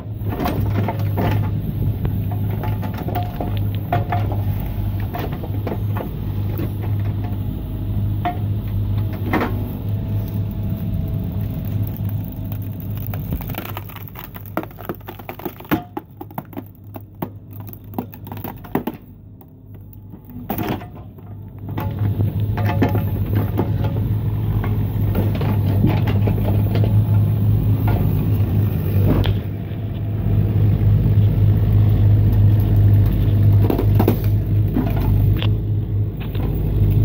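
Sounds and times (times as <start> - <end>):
excavator engine hum: 0.0 - 37.0
wood cracking and snapping: 9.0 - 20.9.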